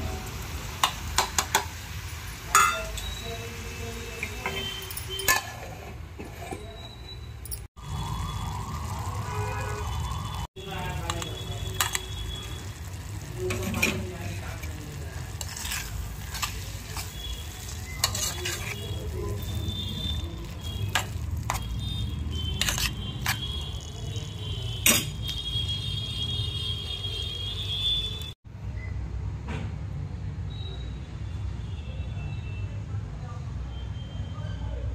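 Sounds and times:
metal spoon clinking pot: 2.5 - 3.1, 4.2 - 6.8, 11.0 - 12.1, 13.5 - 21.7, 22.5 - 24.0, 24.8 - 25.4.

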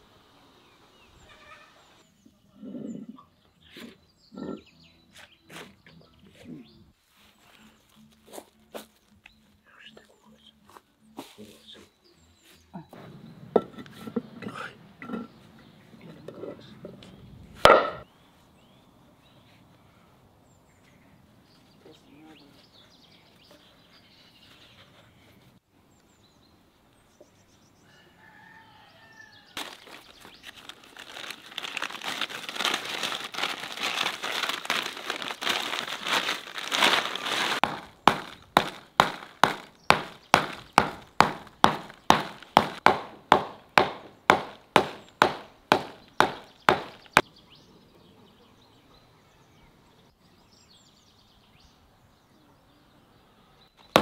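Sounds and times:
plastic sack rustling: 29.6 - 40.9
heavy strikes: 37.6 - 47.0.

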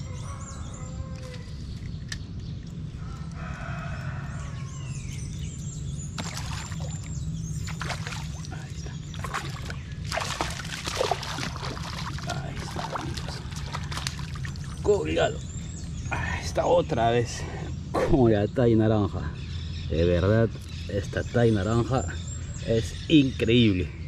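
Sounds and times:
fish splashing at water surface: 6.2 - 14.8.

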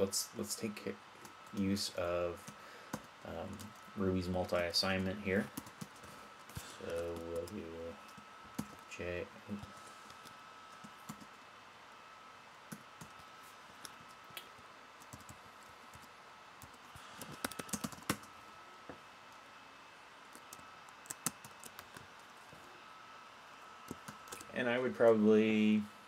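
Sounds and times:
faint high-pitched hum: 0.0 - 26.0
keyboard typing: 5.0 - 6.1, 6.8 - 8.8, 10.2 - 11.4, 15.0 - 18.3, 20.3 - 22.0, 23.9 - 24.5.

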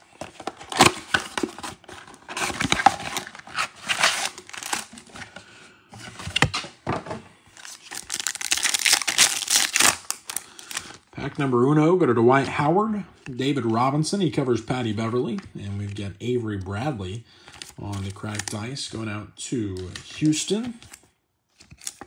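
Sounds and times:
cardboard box being opened: 0.1 - 5.3
foil packs crinkling and tearing: 0.6 - 5.1, 7.6 - 11.0.

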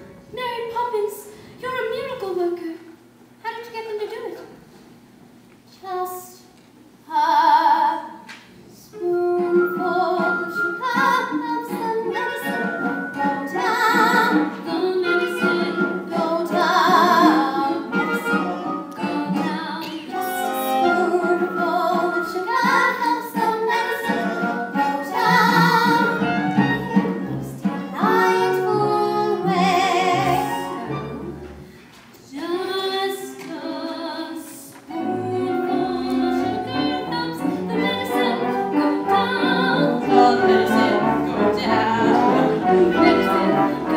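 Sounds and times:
cast singing: 9.1 - 27.1.

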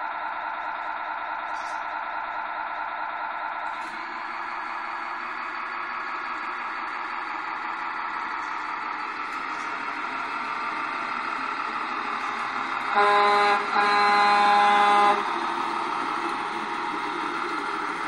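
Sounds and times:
engine running sound: 0.0 - 18.0
toy truck air horn: 12.9 - 15.3.

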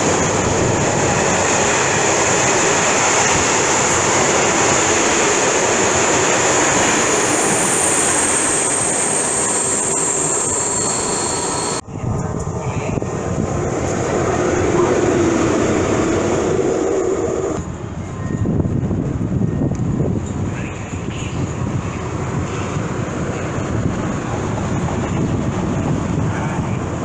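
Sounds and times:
low rumble of rail traffic: 0.0 - 27.0
wheel and rail noise: 0.0 - 27.0
high thin wheel squeal: 7.2 - 11.8.

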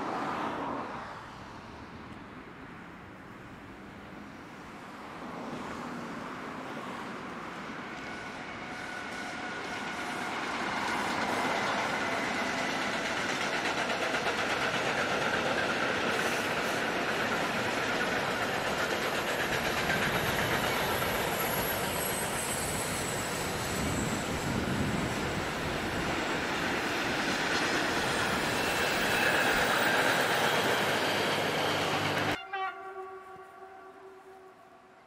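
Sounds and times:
train wheels on rails: 5.4 - 32.4
high wheel squeals: 19.6 - 32.4.

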